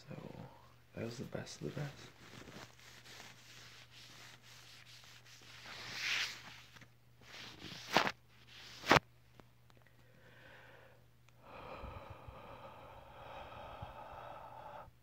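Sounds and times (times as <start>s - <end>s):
rubbing on microphone: 1.6s - 9.0s.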